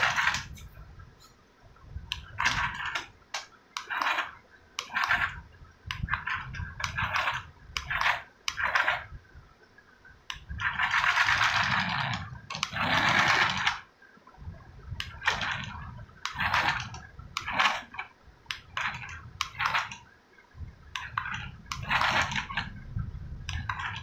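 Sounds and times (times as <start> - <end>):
toy car motor whirring: 3.8 - 9.1, 10.3 - 13.9, 15.0 - 20.0, 21.0 - 22.7
toy wheels rattling on glass: 10.6 - 13.8
low rumble: 20.5 - 24.0.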